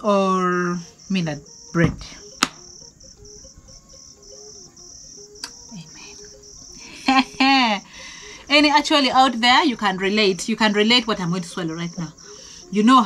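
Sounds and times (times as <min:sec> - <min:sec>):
woman's voice: 0:00.0 - 0:02.2, 0:05.7 - 0:06.3, 0:07.0 - 0:13.0
crickets chirping: 0:00.0 - 0:13.0.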